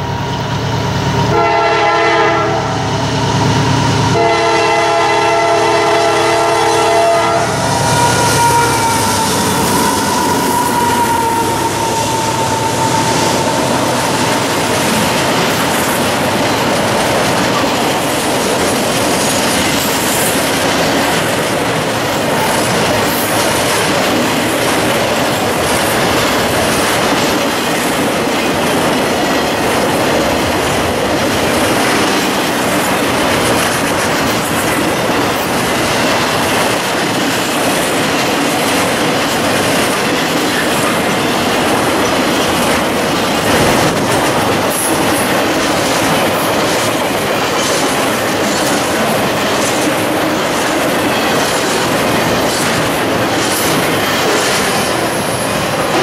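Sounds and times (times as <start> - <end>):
freight train rumble and rattle: 0.0 - 56.0.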